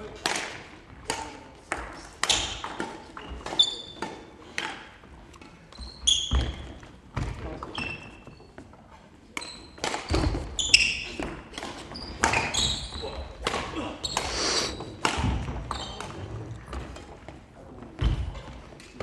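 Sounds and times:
rackets hitting shuttlecock: 0.1 - 8.0, 9.3 - 17.3
shoes squeaking on floor: 2.2 - 4.4, 5.4 - 17.3, 18.0 - 19.0.

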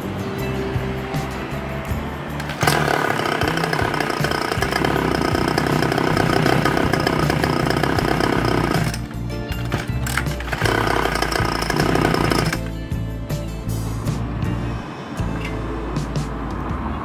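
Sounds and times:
small petrol engine revving: 2.4 - 12.7.

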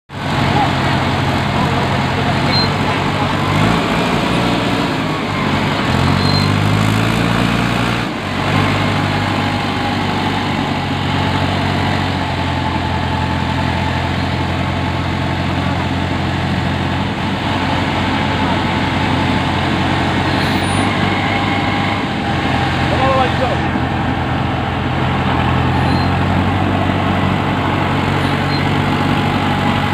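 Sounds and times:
diesel engine running: 0.1 - 29.9
mechanical rush: 16.9 - 29.9.

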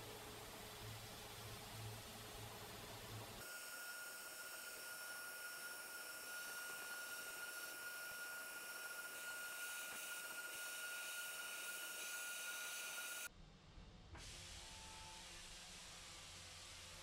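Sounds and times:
milling machine spindle whine: 3.4 - 13.3.

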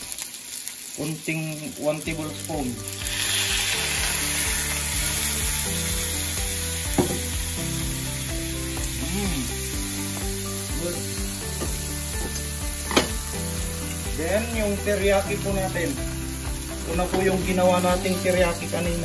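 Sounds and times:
fish sizzling in a frying pan: 0.0 - 19.0
liquid splashing into hot pan: 2.9 - 5.5.

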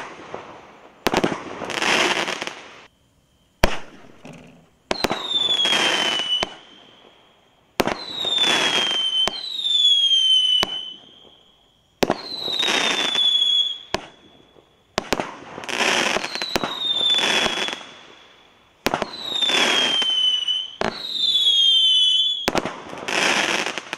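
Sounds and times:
firework shots cracking: 0.0 - 2.9, 3.6 - 6.8, 7.8 - 11.1, 12.0 - 14.2, 14.9 - 17.9, 22.4 - 23.9
falling firework whistle: 0.0 - 23.9.

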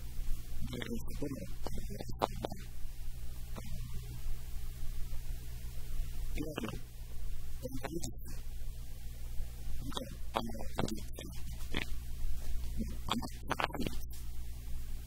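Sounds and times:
electrical hum: 0.0 - 15.0
man murmuring: 0.6 - 2.7, 6.4 - 6.8, 7.6 - 8.4, 9.8 - 11.9, 12.8 - 14.1.

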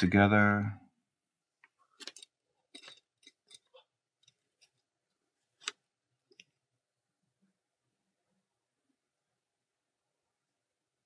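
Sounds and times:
fingers twisting wires clicking: 2.0 - 4.8.

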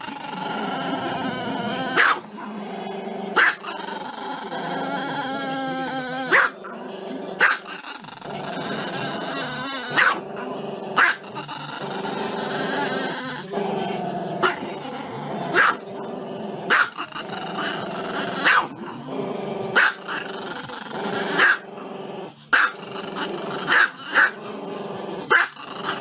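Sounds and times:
small dog growling: 0.0 - 26.0
dog barking: 2.0 - 2.2, 3.4 - 3.7, 6.3 - 6.6, 7.4 - 7.7, 10.0 - 10.2, 11.0 - 11.2, 15.5 - 15.8, 16.7 - 17.0, 18.4 - 18.7, 19.8 - 20.2, 21.4 - 21.6, 22.6 - 22.8, 23.7 - 24.4, 25.3 - 25.6.

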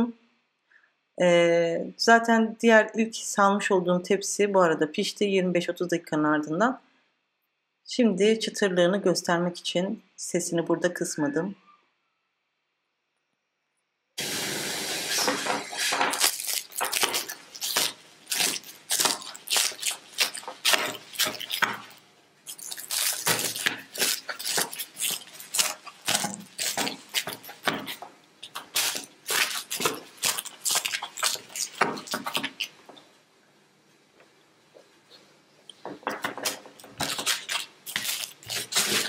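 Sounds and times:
knife crunching through crisp pastry: 15.2 - 32.8, 36.2 - 39.0.

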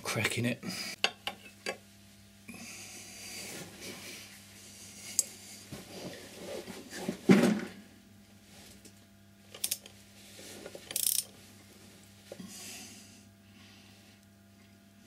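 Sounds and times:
ratcheting spanner clicking: 9.5 - 9.9, 10.9 - 11.3.

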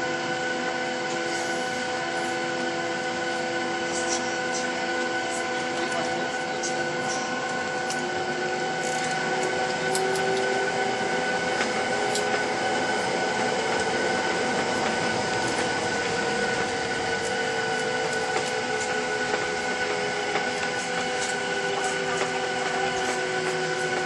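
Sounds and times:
jet engine whine in cabin: 0.0 - 24.0.

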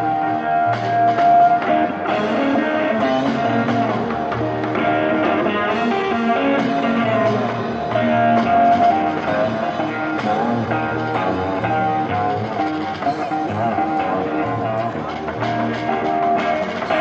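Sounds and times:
bass line: 0.0 - 17.0
drums: 0.0 - 17.0
electric guitar lead notes: 0.0 - 17.0.

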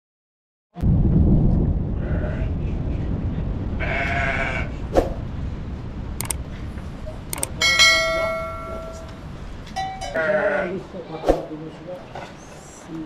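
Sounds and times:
low steady rumbling: 0.8 - 11.1
bright bell chime: 7.6 - 9.2, 9.8 - 10.2.

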